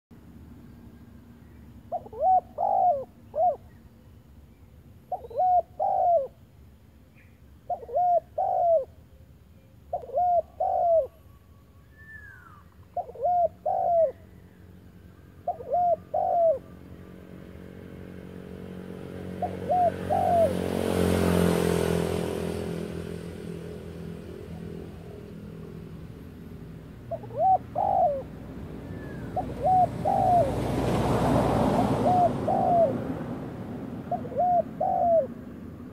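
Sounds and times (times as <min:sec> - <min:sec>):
dove cooing: 0:01.9 - 0:03.8, 0:05.1 - 0:06.4, 0:07.7 - 0:09.0, 0:09.9 - 0:11.3, 0:12.0 - 0:14.6, 0:15.3 - 0:16.9, 0:19.1 - 0:21.5, 0:24.3 - 0:35.7.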